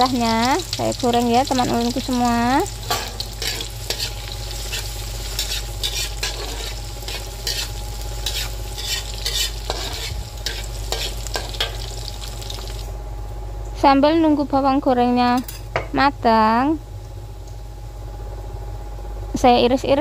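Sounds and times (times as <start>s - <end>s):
shallots sizzling in hot oil: 0.0s - 13.0s
metal spatula scraping a wok: 2.9s - 11.8s.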